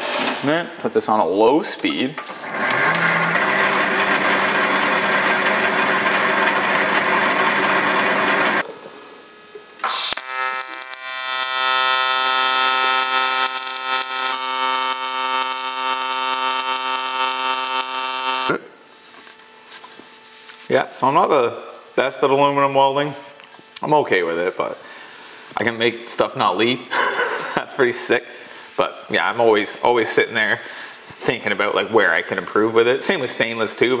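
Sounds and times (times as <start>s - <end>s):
welding arc buzz: 2.2s - 28.8s
lathe motor hum: 2.4s - 18.5s.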